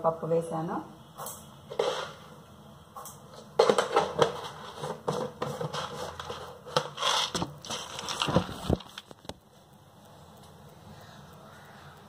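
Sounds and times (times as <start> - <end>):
plastic container clicks and rattles: 3.6 - 9.4.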